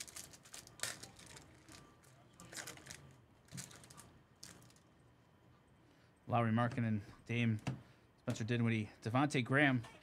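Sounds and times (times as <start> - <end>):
foil wrapper crinkling: 0.0 - 4.8.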